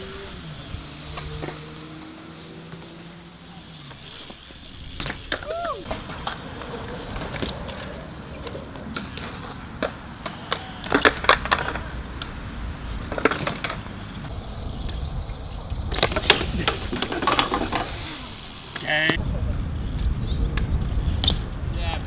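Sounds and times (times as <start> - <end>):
bike pegs grinding concrete: 0.0 - 22.0
bike tyres rolling on concrete: 0.0 - 22.0.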